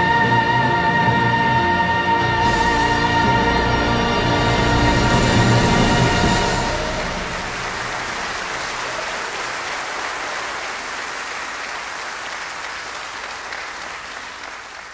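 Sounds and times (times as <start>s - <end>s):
congregation applauding: 4.2s - 14.9s.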